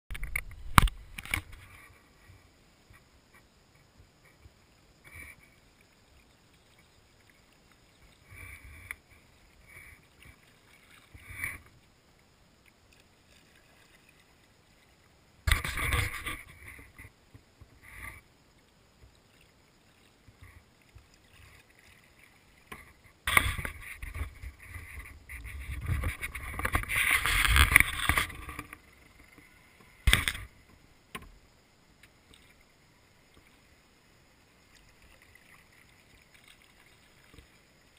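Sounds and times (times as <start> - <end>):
oars splashing in water: 6.3 - 12.0, 19.0 - 31.4, 34.6 - 37.9.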